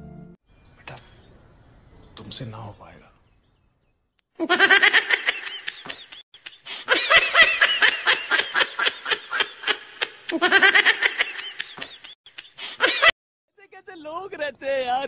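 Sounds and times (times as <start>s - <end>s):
high-pitched laughter: 4.4s - 13.1s.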